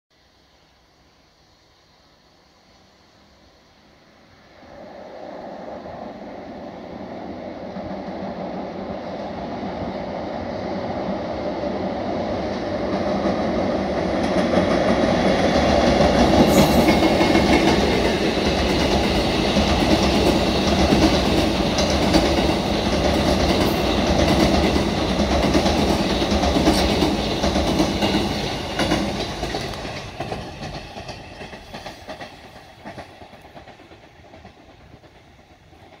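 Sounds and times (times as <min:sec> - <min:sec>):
train wheels rumbling on bridge: 0:04.8 - 0:36.0
clickety-clack of rail joints: 0:10.5 - 0:36.0.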